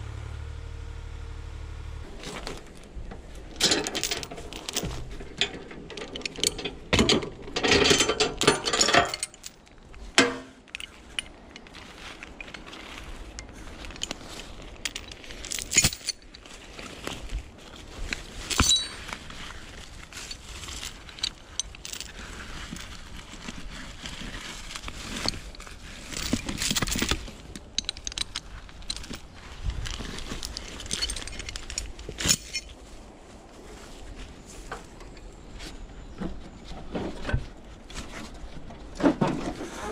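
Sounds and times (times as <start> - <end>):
heavy chain clinking and rattling: 3.5 - 16.4, 18.4 - 32.8.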